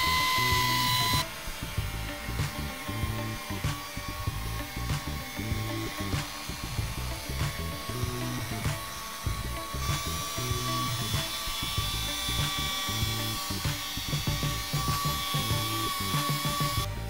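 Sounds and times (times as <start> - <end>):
background music with a beat: 0.0 - 17.0
electric polisher whining: 0.0 - 17.0.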